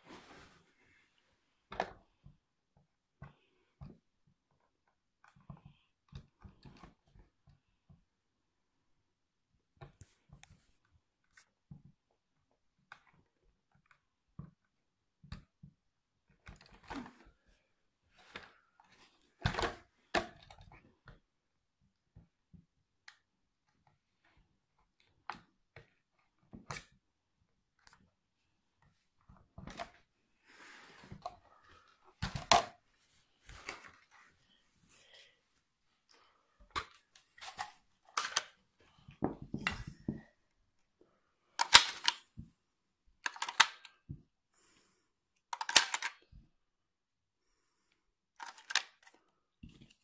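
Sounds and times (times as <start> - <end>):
plastic clicks and rustles: 36.6 - 40.4, 41.5 - 42.5, 43.2 - 44.2, 45.4 - 46.4, 48.4 - 50.0.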